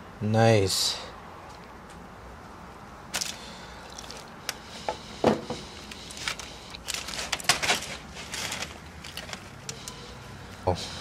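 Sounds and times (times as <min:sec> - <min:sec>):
foil crinkling: 0:03.1 - 0:04.3, 0:05.6 - 0:10.2
wet meat handling: 0:03.1 - 0:04.6.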